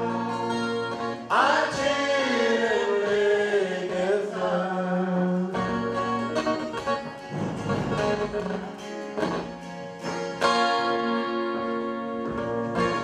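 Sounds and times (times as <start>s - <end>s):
twelve-string acoustic guitar strumming: 0.0s - 13.0s.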